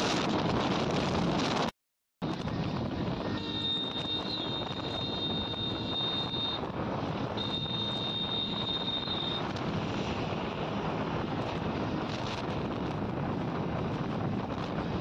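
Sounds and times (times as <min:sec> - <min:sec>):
motorcycle road noise: 0:00.0 - 0:15.0
wind rushing over microphone: 0:00.0 - 0:15.0
high-pitched tone: 0:03.2 - 0:06.6, 0:07.4 - 0:09.4.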